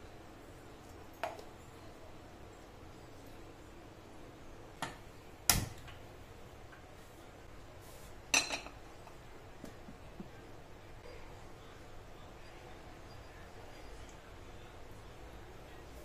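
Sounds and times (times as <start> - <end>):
kitchenware knocks and clinks: 8.3 - 8.8.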